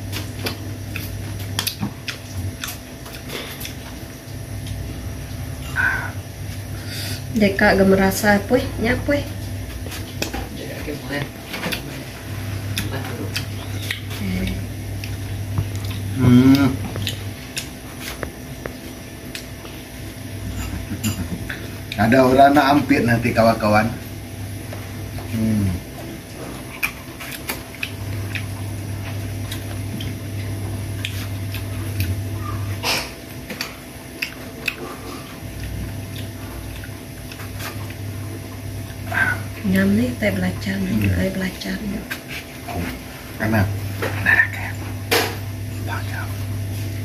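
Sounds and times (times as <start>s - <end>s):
low hum: 0.0s - 11.0s
low steady hum: 0.0s - 47.0s
short wavering vocal sound: 5.6s - 6.2s, 16.1s - 16.9s.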